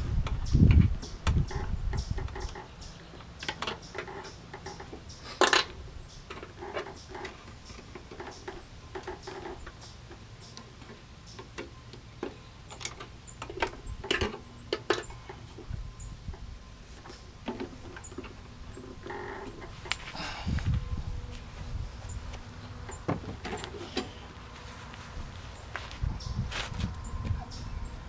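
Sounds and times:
hands clicking on engine controls: 1.0 - 15.7.

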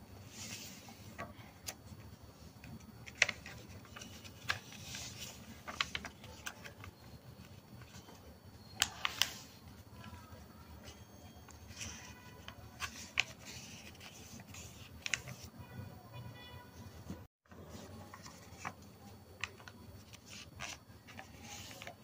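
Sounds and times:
paper rustling and crackling: 2.6 - 15.6, 17.5 - 22.0.

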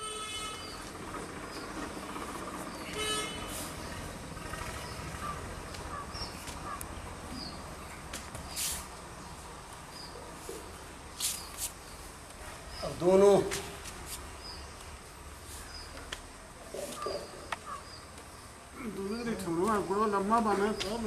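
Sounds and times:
vehicle horn beeping: 0.0 - 0.8, 2.9 - 3.7
traffic rumble: 0.0 - 21.0
short hissy noises: 3.3 - 3.9, 8.4 - 9.0, 10.5 - 11.9.

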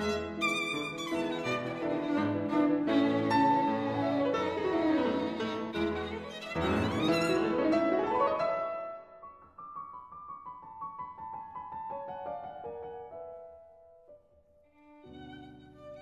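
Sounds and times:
instrumental violin music: 0.0 - 8.1, 14.6 - 16.0.

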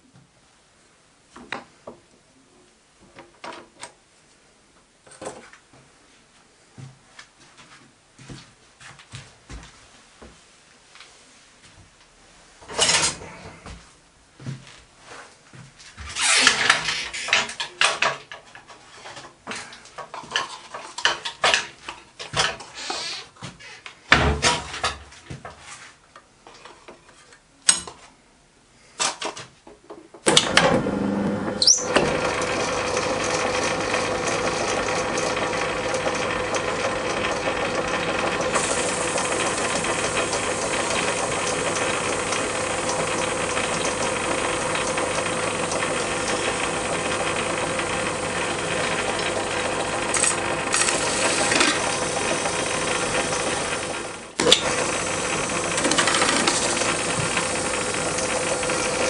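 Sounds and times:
metal lathe running: 31.8 - 59.0.

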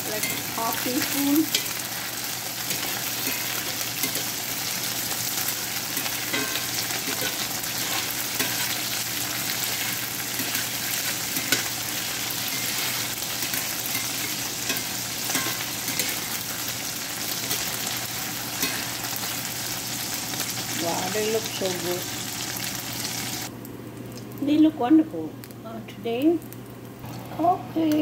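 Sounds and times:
food sizzling in hot oil: 0.0 - 23.5
spatula scraping a pan: 0.1 - 16.7, 18.5 - 19.1.

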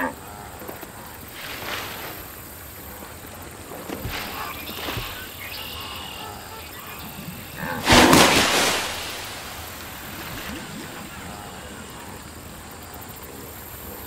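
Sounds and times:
loud water splash: 1.3 - 2.5, 4.0 - 5.4, 7.7 - 11.2.

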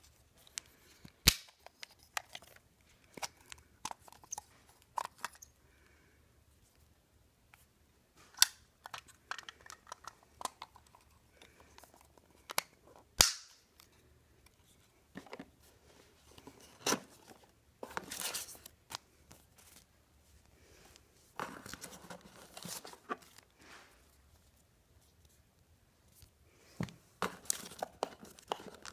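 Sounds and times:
plastic housing clicks and knocks: 8.4 - 10.8
cardboard and paper rustling: 14.6 - 19.9, 21.3 - 25.1, 27.2 - 28.9.

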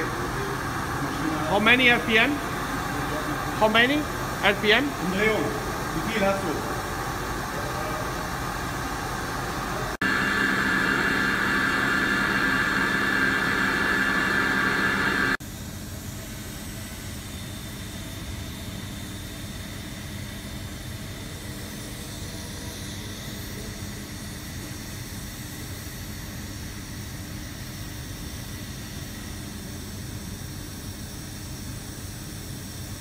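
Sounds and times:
milling machine spindle whine: 0.0 - 15.4
steady machine hum: 0.0 - 33.0.

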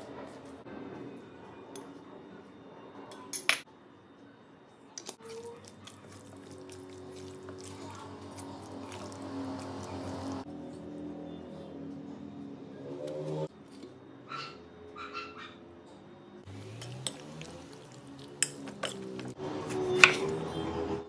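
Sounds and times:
wet squelching of stirred meat: 5.1 - 10.4, 16.5 - 19.4.

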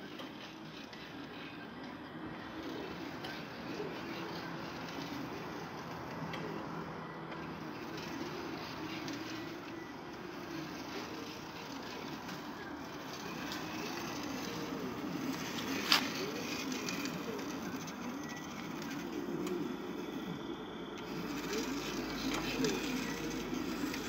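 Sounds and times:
motors whining: 0.0 - 24.0.

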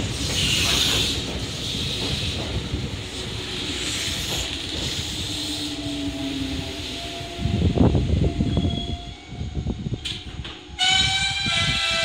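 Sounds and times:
train hiss: 0.0 - 7.9
electric train rolling: 0.0 - 12.0.

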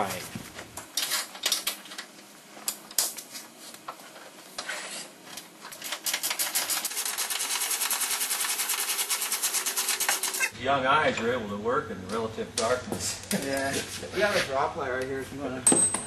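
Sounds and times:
fast mechanical clicking: 5.8 - 10.5.

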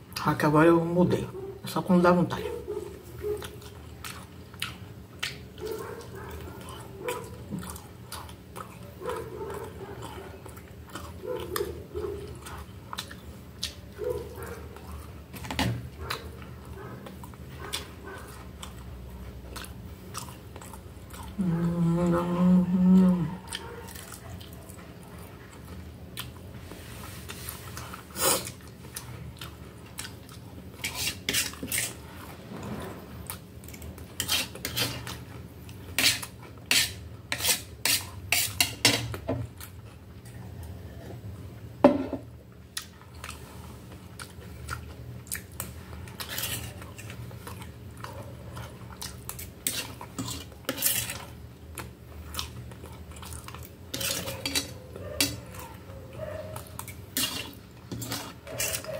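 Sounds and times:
chewing: 2.7 - 32.4, 42.6 - 58.9.

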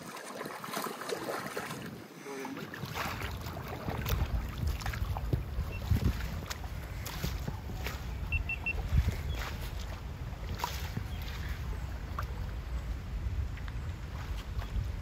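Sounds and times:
oars splashing in water: 0.0 - 15.0
short high chirps: 8.3 - 8.8.

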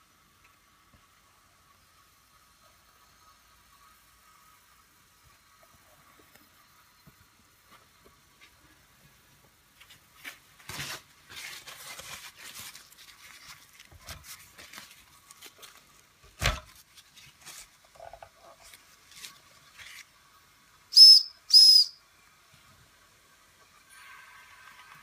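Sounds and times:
faint crackles and ticks: 0.2 - 2.0
high steam whistle blast: 20.9 - 22.2.

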